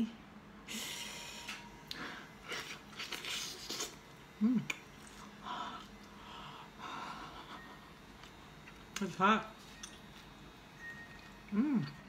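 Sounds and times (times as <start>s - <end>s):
voiced hum: 0.0s - 12.0s
person chewing: 1.9s - 6.2s.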